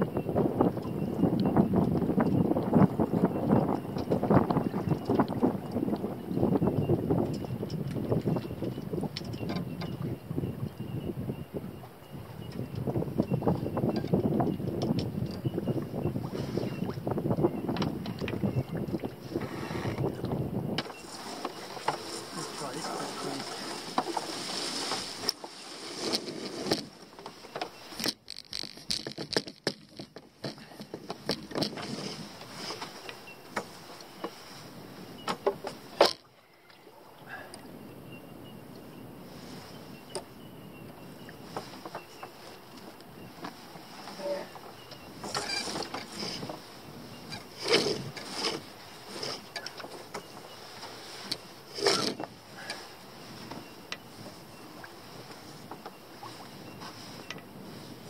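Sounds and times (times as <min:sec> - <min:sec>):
ropes rubbing: 0:20.8 - 0:33.8, 0:45.2 - 0:57.2
deck gear clicks and knocks: 0:26.1 - 0:31.9.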